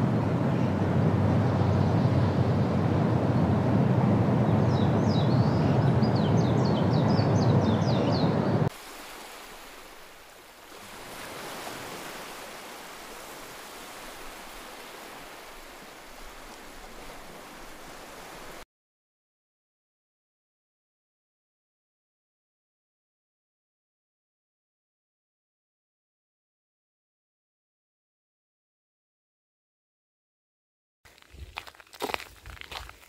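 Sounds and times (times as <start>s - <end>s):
surf on a beach: 0.0s - 18.6s
wind: 0.0s - 18.6s, 31.1s - 33.0s.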